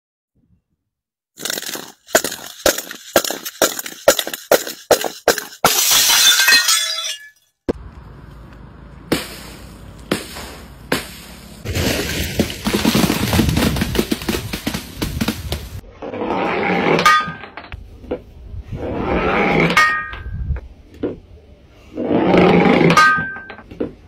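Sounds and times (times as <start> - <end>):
glass jar knocking down steps: 1.4 - 7.4
glass shattering: 1.4 - 7.5.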